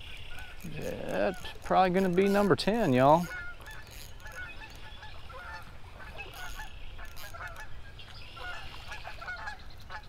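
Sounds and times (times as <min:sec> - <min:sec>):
geese honking: 0:00.2 - 0:10.0.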